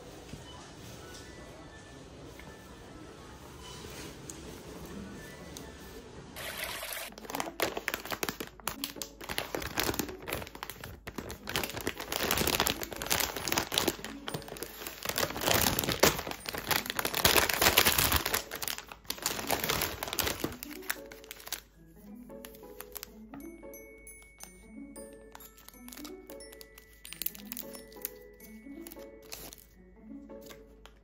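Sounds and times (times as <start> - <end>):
wrapped pieces spilling: 6.4 - 21.6, 25.6 - 28.2
plastic packaging crinkling: 6.4 - 21.8, 22.4 - 23.2, 25.3 - 29.8.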